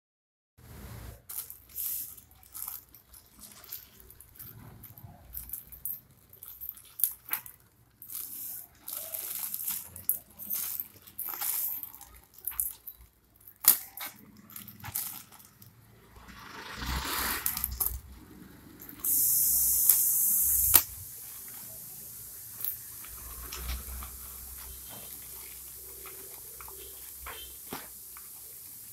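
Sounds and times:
plastic mailer crinkling and tearing: 1.2s - 5.6s, 6.4s - 12.7s
loud steady hiss: 18.8s - 28.9s.

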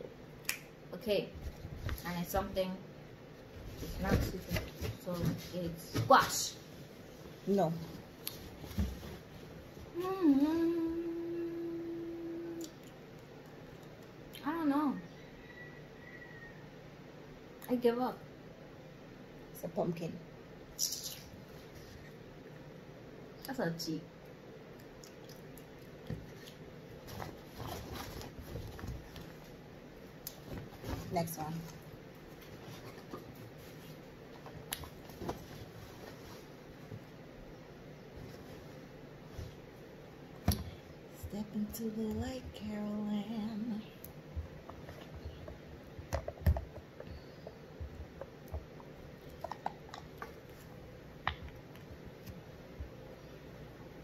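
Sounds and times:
plastic bag rustling: 26.3s - 29.6s.

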